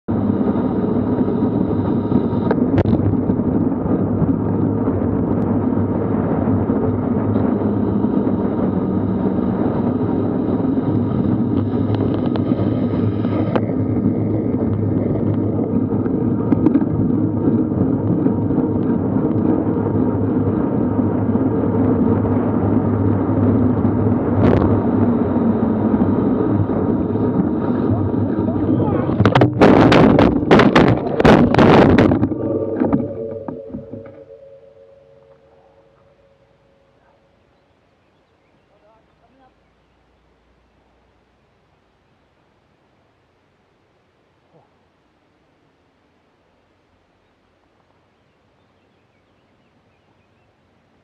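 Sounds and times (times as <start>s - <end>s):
bike tyres on tarmac: 0.1s - 36.3s
wind buffeting microphone: 0.1s - 39.5s.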